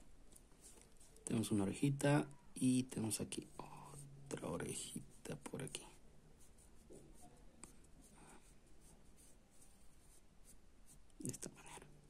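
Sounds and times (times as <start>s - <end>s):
pencil scratching on paper: 4.7s - 11.0s.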